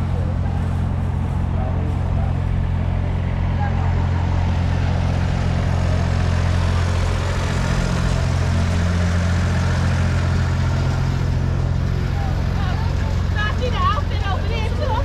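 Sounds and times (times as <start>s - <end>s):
generator engine humming: 0.0s - 15.0s
street noise: 0.0s - 15.0s.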